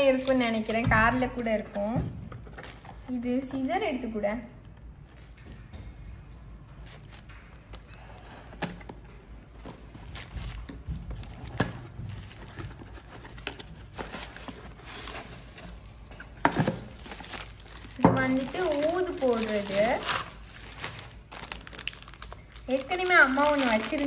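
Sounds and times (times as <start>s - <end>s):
newspaper rustling and crinkling: 9.5s - 24.0s.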